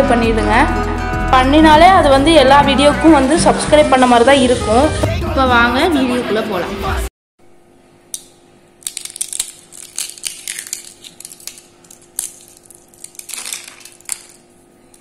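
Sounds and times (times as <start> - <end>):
crackers crackling and snapping: 8.1 - 15.0
pieces dropping onto plate: 8.8 - 14.5.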